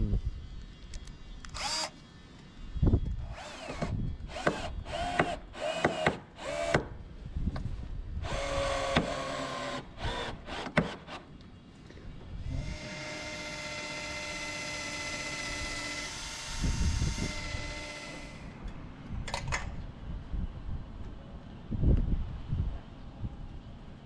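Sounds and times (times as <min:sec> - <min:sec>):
cordless drill whining: 0:01.4 - 0:02.0, 0:03.0 - 0:06.8, 0:08.2 - 0:11.2, 0:12.4 - 0:18.6.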